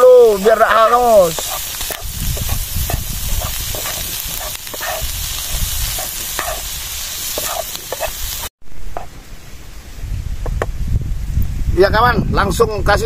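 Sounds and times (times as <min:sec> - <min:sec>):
food sizzling in a frying pan: 0:00.0 - 0:09.1
wooden spatula scraping a pan: 0:00.8 - 0:09.1.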